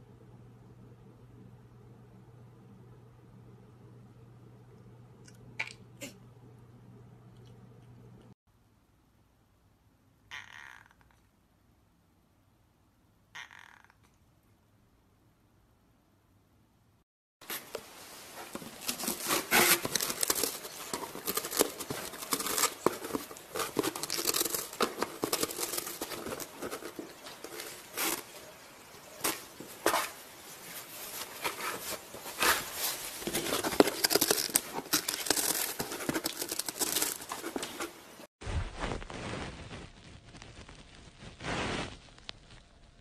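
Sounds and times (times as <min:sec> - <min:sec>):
cat gnawing cardboard: 0:18.8 - 0:28.3, 0:33.3 - 0:37.8.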